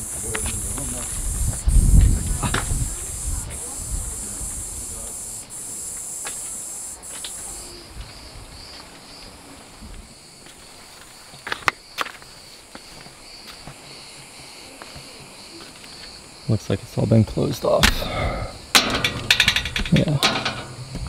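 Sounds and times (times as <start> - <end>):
insects trilling: 0.0 - 21.0
footsteps on rocky ground: 8.0 - 13.8, 20.6 - 21.0.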